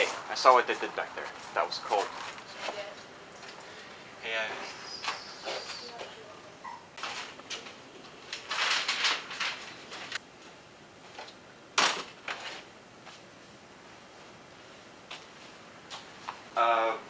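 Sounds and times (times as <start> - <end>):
rustling and scraping: 1.3 - 3.7, 7.0 - 11.4, 12.0 - 13.3.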